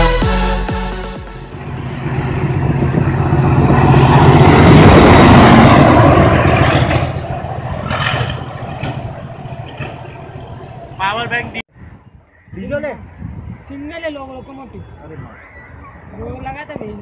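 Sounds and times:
train passing on tracks: 0:00.9 - 0:11.6.

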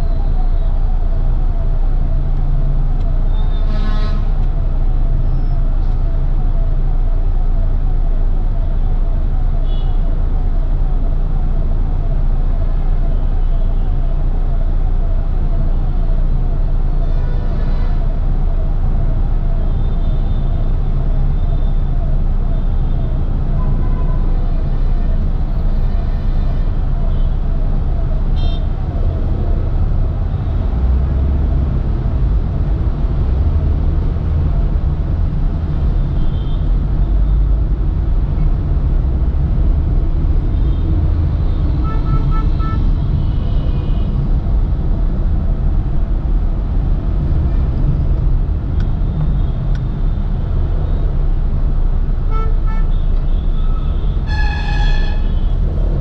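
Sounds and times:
traffic rumble: 0:00.0 - 0:56.0
vehicle horns honking: 0:03.5 - 0:04.3, 0:52.3 - 0:55.6.

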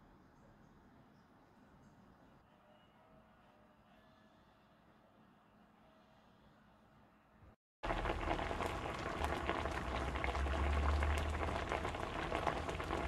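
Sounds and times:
food sizzling in a frying pan: 0:07.8 - 0:13.0.

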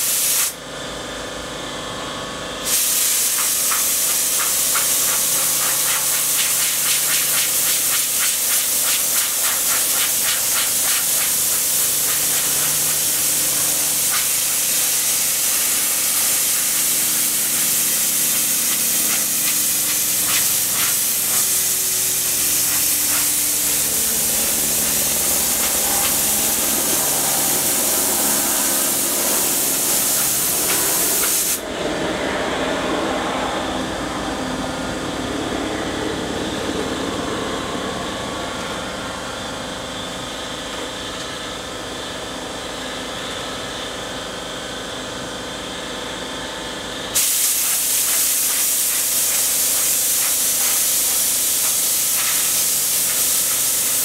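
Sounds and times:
compressed air blower hissing: 0:00.0 - 0:00.6, 0:02.6 - 0:31.7, 0:47.2 - 0:54.0.

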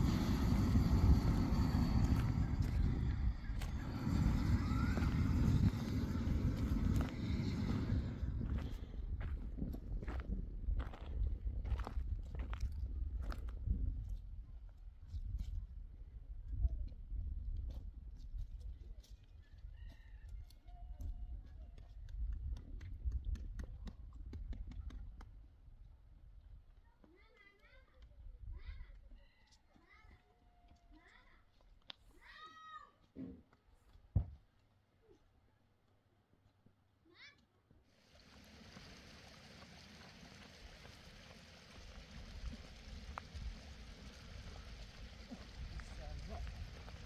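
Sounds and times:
wind rumble on microphone: 0:00.0 - 0:19.0, 0:19.6 - 0:25.2, 0:42.0 - 0:47.0
footsteps on gravel: 0:00.5 - 0:13.5
outdoor hiss: 0:37.9 - 0:47.0.

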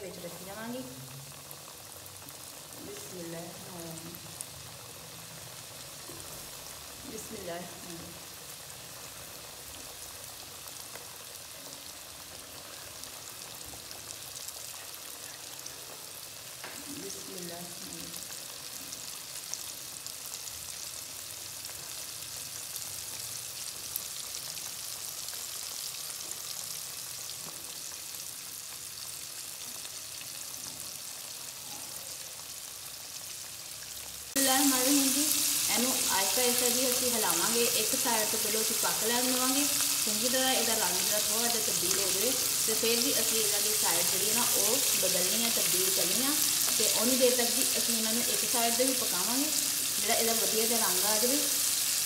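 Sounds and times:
chicken deep-frying sizzle: 0:00.0 - 0:52.0.

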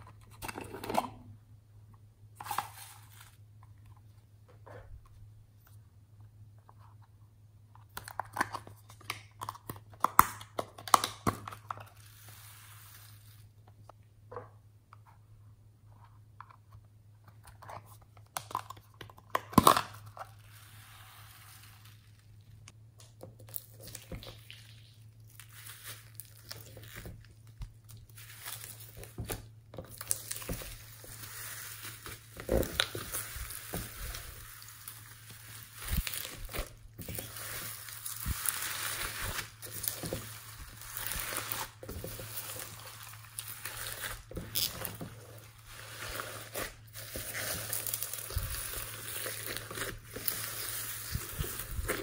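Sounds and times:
slime crackling and popping: 0:21.6 - 0:44.8, 0:45.9 - 0:52.0.

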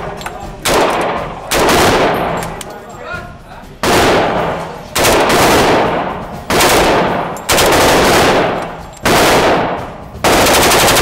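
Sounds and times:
rapid gunfire: 0:00.6 - 0:02.4, 0:03.8 - 0:11.0
submachine gun firing: 0:00.6 - 0:02.6, 0:03.8 - 0:11.0.

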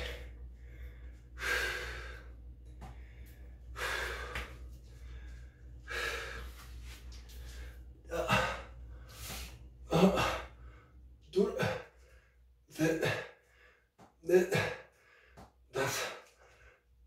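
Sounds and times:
man breathing hard: 0:00.0 - 0:17.0.

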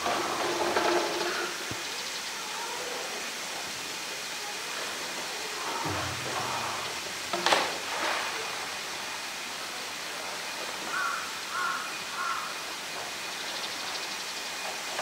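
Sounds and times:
crow cawing: 0:05.7 - 0:07.0, 0:10.9 - 0:12.5
sharp knock: 0:05.8 - 0:07.7.

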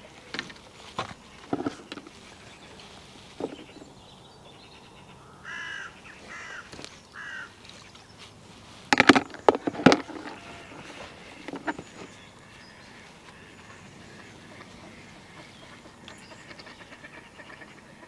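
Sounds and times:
fishing tackle knocks and clatter: 0:00.3 - 0:02.1, 0:03.4 - 0:03.9, 0:08.9 - 0:12.1
crow cawing: 0:05.0 - 0:07.6, 0:09.9 - 0:17.9.

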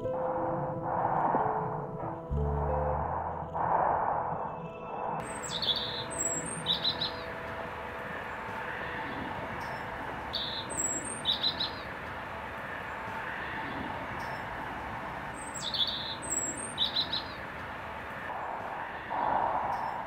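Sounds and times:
musical tone: 0:00.0 - 0:10.8
small birds chirping: 0:05.2 - 0:17.6.

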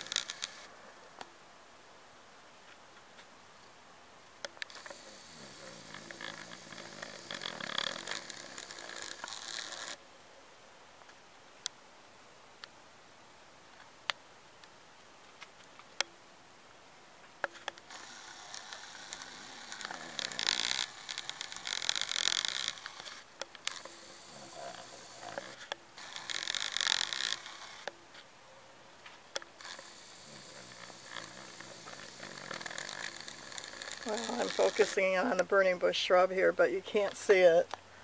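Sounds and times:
rubbing and scraping on device: 0:04.7 - 0:10.0, 0:17.5 - 0:27.9, 0:29.1 - 0:35.8.

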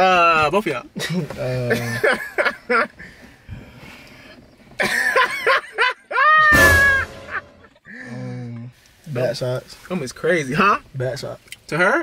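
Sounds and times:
people laughing: 0:01.0 - 0:03.0, 0:04.8 - 0:07.9.

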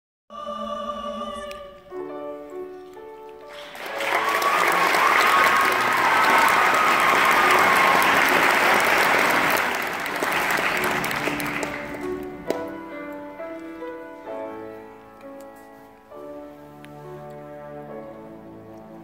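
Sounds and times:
string orchestra playing: 0:03.4 - 0:15.4, 0:16.0 - 0:19.0
audience applauding: 0:03.5 - 0:12.7.

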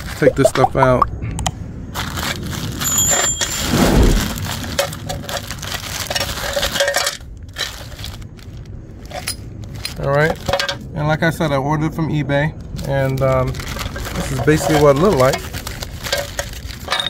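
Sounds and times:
plastic wrapping crinkling: 0:02.0 - 0:10.6, 0:12.6 - 0:17.0
high metallic ring: 0:02.8 - 0:03.9.

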